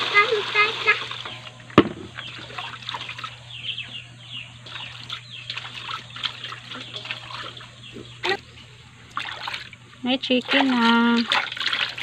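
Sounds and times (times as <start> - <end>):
small splashes: 0.0 - 3.6, 4.6 - 12.0
water sloshing in steel basin: 0.0 - 3.8, 4.6 - 12.0.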